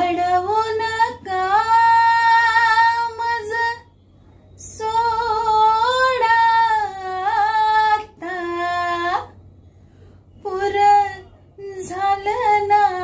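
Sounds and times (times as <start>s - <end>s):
woman singing unaccompanied: 0.0s - 3.9s, 4.6s - 9.3s, 10.4s - 13.0s.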